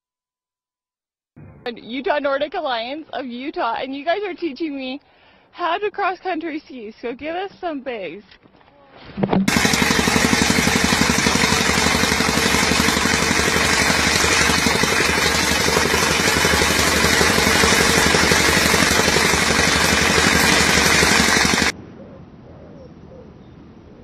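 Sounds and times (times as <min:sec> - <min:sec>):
machine running with fast rattle: 0:09.4 - 0:21.8.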